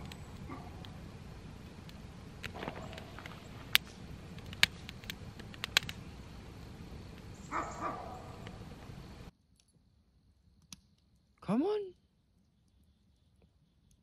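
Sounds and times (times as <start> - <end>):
wood fire crackling and popping: 0.0 - 9.8.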